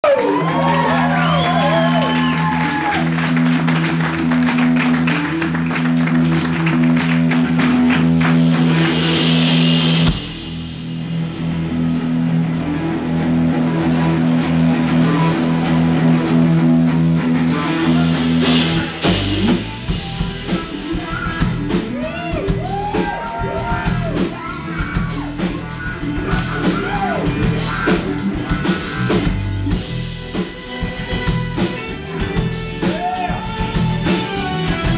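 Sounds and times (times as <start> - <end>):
bass guitar: 0.0 - 34.9
drum kit: 0.0 - 34.9
electric guitars: 0.0 - 34.9.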